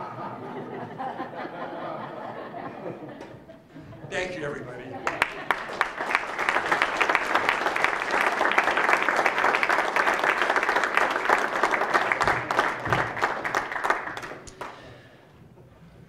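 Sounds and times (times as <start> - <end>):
audience applauding: 5.0 - 15.0.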